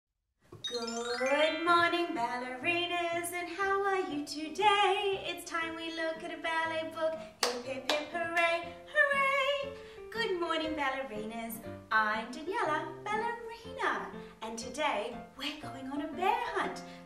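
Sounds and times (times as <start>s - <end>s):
woman singing: 1.2s - 16.7s
hands clapping: 7.4s - 8.5s.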